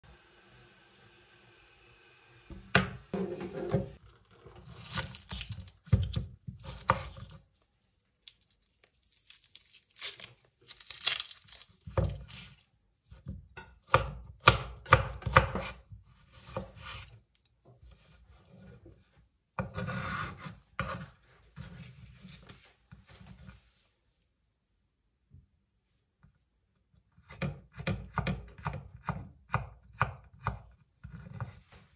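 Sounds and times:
knife scraping board: 0:03.1 - 0:05.2, 0:15.2 - 0:17.2, 0:19.6 - 0:22.6
knife chopping on wooden board: 0:13.8 - 0:15.8, 0:27.3 - 0:31.5.

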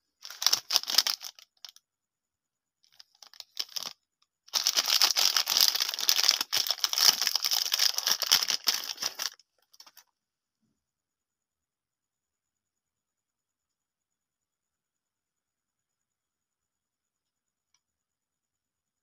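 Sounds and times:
plastic wrapper crinkling and tearing: 0:00.2 - 0:01.8, 0:02.9 - 0:03.9, 0:04.5 - 0:10.0.

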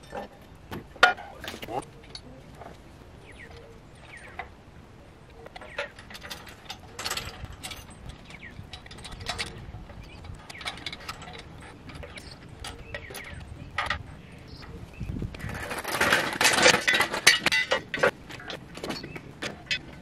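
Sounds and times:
metallic clinks and rattles: 0:05.5 - 0:14.7, 0:15.6 - 0:20.0.

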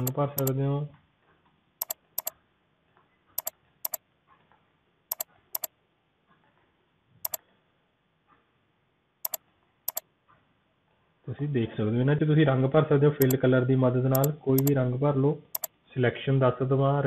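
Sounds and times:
computer mouse clicks: 0:00.0 - 0:00.6, 0:01.8 - 0:02.3, 0:03.4 - 0:04.0, 0:05.1 - 0:05.7, 0:09.3 - 0:10.0, 0:13.2 - 0:13.4, 0:14.1 - 0:14.8.

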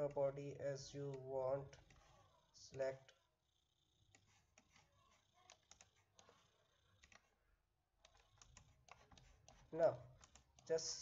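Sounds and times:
computer mouse clicks: 0:01.0 - 0:02.1, 0:04.1 - 0:07.3, 0:08.0 - 0:10.8.

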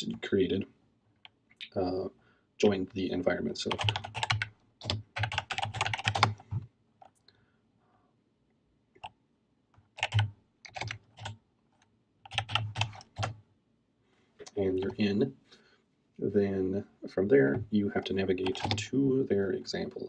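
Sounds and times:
typing on computer keyboard: 0:03.7 - 0:06.6, 0:09.9 - 0:11.4, 0:12.3 - 0:13.4, 0:18.4 - 0:18.8.

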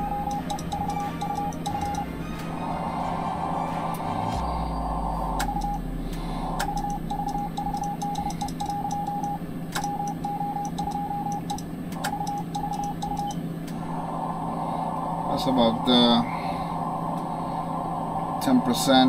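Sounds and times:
morse code beeps: 0:00.0 - 0:02.4, 0:03.5 - 0:13.4
steady low hum: 0:00.0 - 0:19.0.

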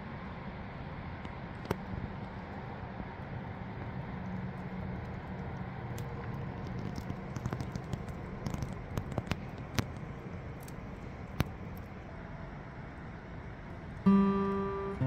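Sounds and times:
loud fire snaps: 0:01.2 - 0:12.1
wood fire crackling and popping: 0:01.2 - 0:12.1.

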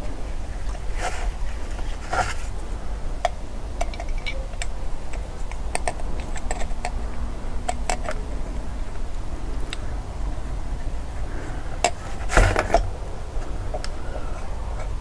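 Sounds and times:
steady low hum: 0:00.0 - 0:15.0
metal parts clicking and tapping: 0:03.2 - 0:07.0.

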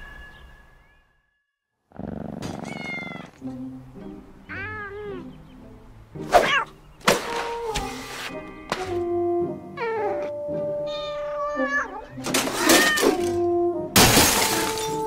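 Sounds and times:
background music: 0:02.4 - 0:15.0
cat meowing: 0:02.6 - 0:03.4, 0:04.5 - 0:05.3, 0:09.8 - 0:13.3.

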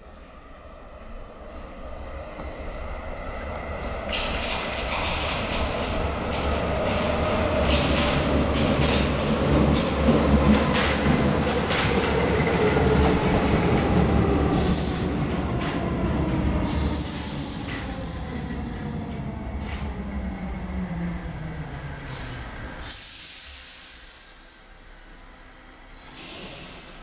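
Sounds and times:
air hiss: 0:14.6 - 0:15.2, 0:16.6 - 0:18.8, 0:22.0 - 0:24.9, 0:25.9 - 0:27.0
train brake squeals: 0:25.8 - 0:27.0.

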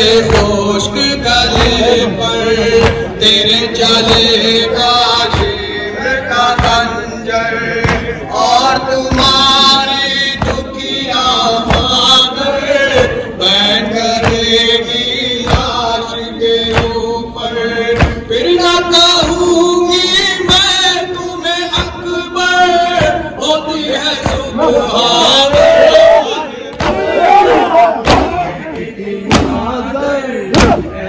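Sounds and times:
men chanting: 0:00.0 - 0:31.0
hands striking chests: 0:01.5 - 0:02.0, 0:15.4 - 0:15.7, 0:16.7 - 0:17.0.

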